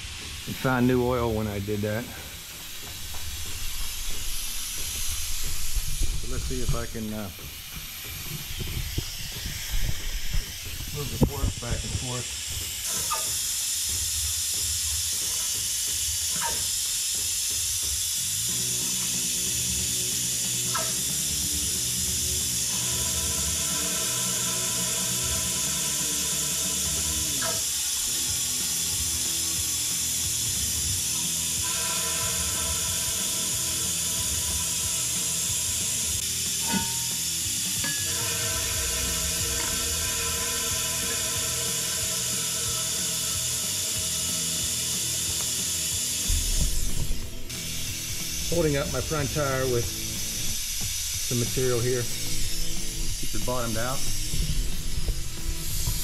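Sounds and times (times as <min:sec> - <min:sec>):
vacuum pump hissing: 0:00.0 - 0:56.0
background music: 0:18.6 - 0:56.0.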